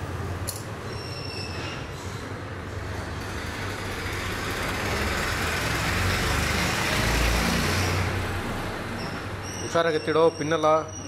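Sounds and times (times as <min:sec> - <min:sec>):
vehicle passing by: 0:03.2 - 0:09.4.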